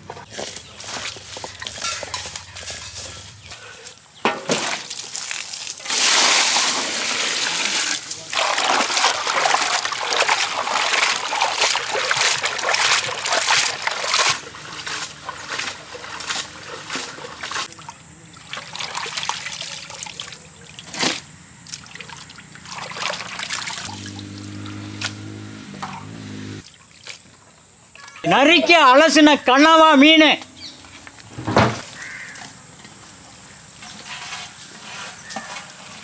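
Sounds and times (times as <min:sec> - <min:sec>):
water sloshing and splashing: 0:04.4 - 0:25.2, 0:25.8 - 0:28.2.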